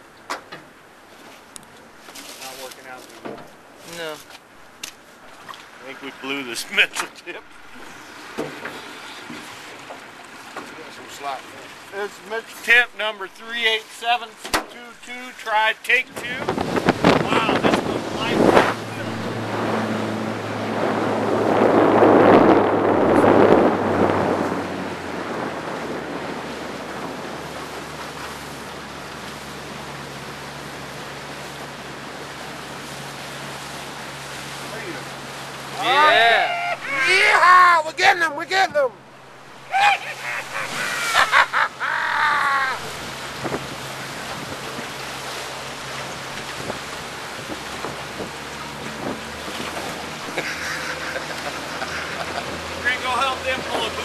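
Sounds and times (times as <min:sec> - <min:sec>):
water rushing: 0:00.0 - 0:54.0
wind: 0:00.0 - 0:54.0
outboard motor running: 0:16.2 - 0:54.0
high arching calls: 0:35.8 - 0:37.6, 0:39.5 - 0:42.9.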